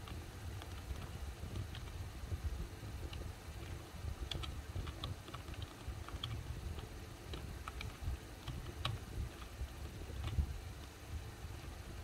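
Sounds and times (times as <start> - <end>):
keyboard keystroke clicks: 4.3 - 6.4.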